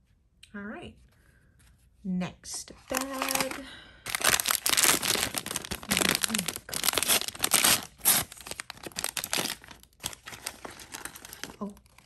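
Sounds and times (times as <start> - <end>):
plastic bag tearing and crinkling: 2.9 - 12.0.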